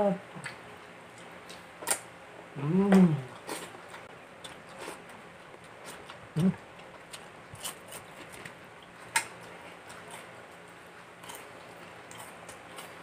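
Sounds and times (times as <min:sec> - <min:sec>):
low voice hum: 0:00.0 - 0:00.5, 0:02.5 - 0:03.5, 0:06.3 - 0:06.7.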